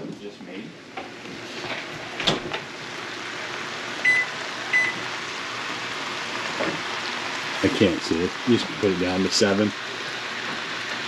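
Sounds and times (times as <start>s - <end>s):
touch control beeps: 4.1s - 5.0s
steady hiss: 6.2s - 11.0s.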